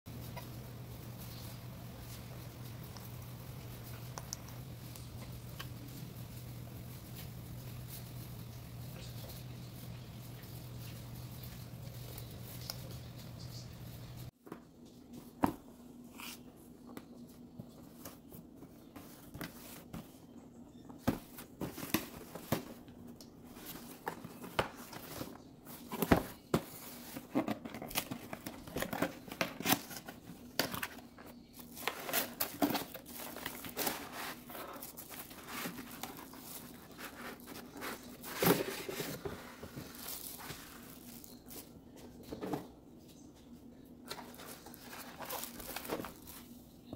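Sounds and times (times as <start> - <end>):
paper and packaging rustling: 0.1 - 15.4, 21.0 - 42.7, 44.0 - 46.7
plastic bag crinkling: 31.6 - 41.7, 44.2 - 46.6.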